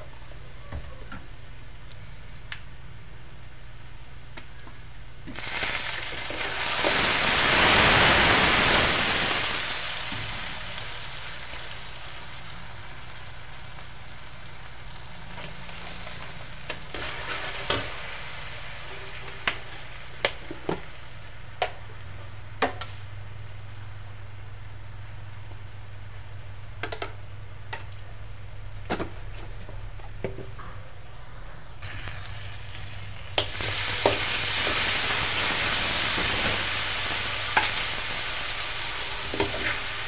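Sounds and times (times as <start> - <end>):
aromatics sizzling in oil: 5.3 - 21.5, 31.8 - 40.0.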